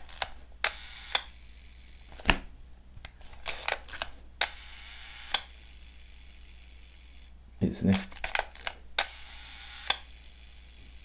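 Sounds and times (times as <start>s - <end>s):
shutter escapement whir: 0.0s - 2.4s, 3.4s - 6.3s, 8.0s - 11.0s
camera shutter clicks: 0.1s - 1.4s, 7.9s - 10.2s.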